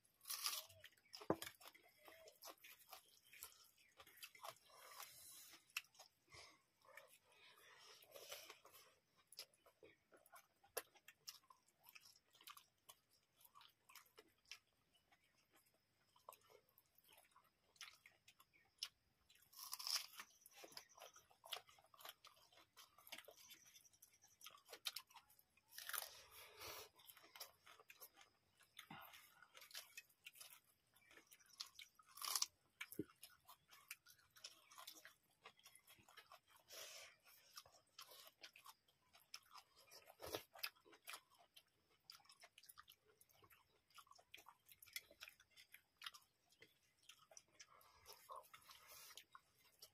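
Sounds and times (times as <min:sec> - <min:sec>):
crunching raw onion: 0:00.0 - 0:06.1, 0:17.8 - 0:36.9
chewing and mouth noises: 0:00.0 - 0:49.9.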